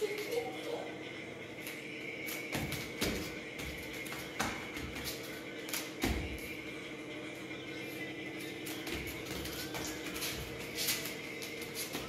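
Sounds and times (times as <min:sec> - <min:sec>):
faint music: 0:00.0 - 0:12.0
bare feet thudding on foam mat: 0:02.6 - 0:05.2.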